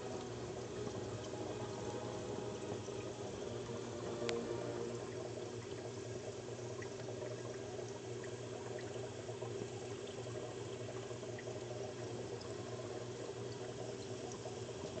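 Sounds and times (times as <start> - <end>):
low equipment hum: 0.0 - 7.8
aquarium water bubbling: 0.0 - 15.0.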